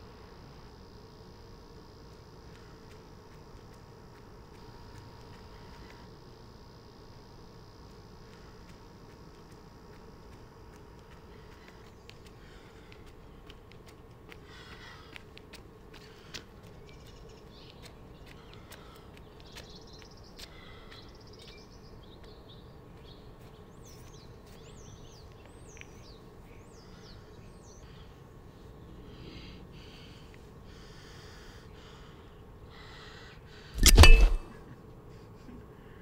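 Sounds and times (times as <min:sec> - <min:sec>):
faint steady hum: 0:00.0 - 0:36.0
small birds chirping: 0:16.0 - 0:30.1.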